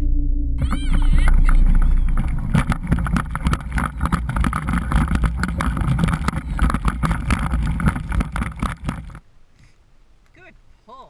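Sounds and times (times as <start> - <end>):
wind rushing over microphone: 0.6 - 9.2
sled runners scraping on snow: 1.0 - 9.2.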